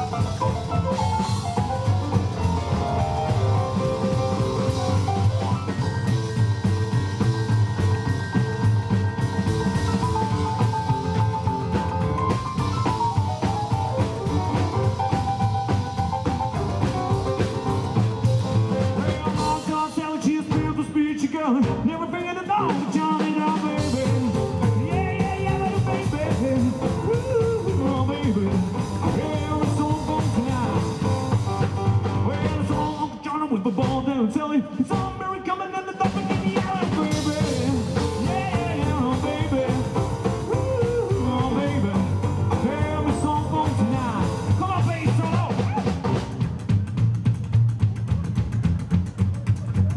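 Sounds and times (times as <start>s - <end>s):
rock and roll band playing: 0.0s - 49.9s.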